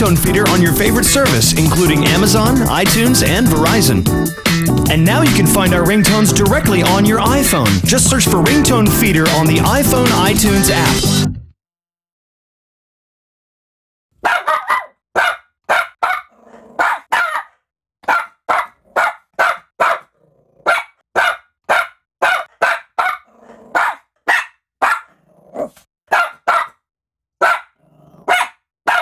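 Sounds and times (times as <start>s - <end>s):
small dog yapping: 14.2s - 26.8s, 27.4s - 29.0s
dog growling: 16.3s - 16.8s, 20.1s - 20.8s, 23.2s - 23.8s, 25.1s - 25.8s, 27.8s - 28.4s.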